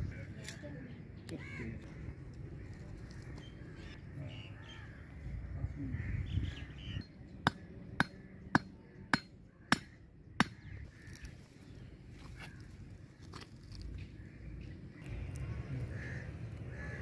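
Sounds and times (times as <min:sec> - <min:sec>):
crows cawing: 0:01.4 - 0:03.4, 0:07.5 - 0:11.4, 0:15.8 - 0:17.0.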